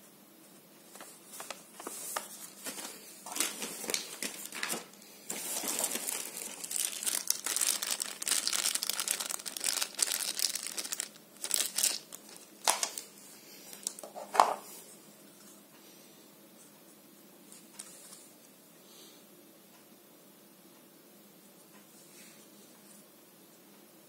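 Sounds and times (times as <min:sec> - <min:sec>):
plastic bags crinkling: 0:01.0 - 0:13.1, 0:13.7 - 0:14.3.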